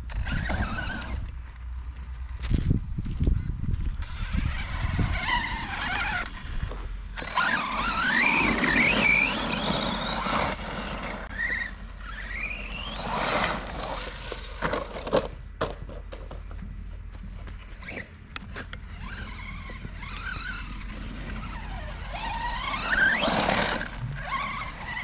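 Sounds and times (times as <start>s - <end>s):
electric motor whining: 0.0s - 1.4s, 4.0s - 15.0s, 17.6s - 25.0s.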